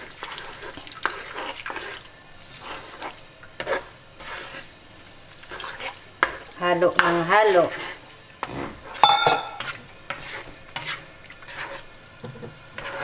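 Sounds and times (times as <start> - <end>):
spatula scraping and knocking on pan: 2.6 - 4.7, 5.5 - 13.0.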